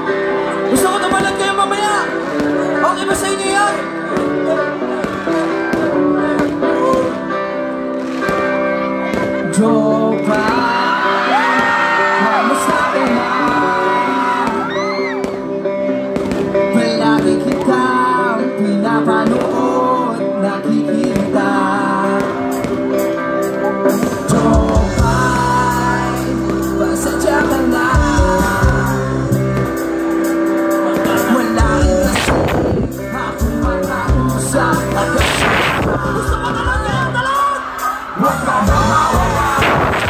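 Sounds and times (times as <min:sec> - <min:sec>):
live band playing: 0:00.0 - 0:40.0
person singing: 0:01.9 - 0:07.8, 0:08.4 - 0:40.0
deep bass notes: 0:24.2 - 0:30.1, 0:31.4 - 0:37.3, 0:38.2 - 0:40.0.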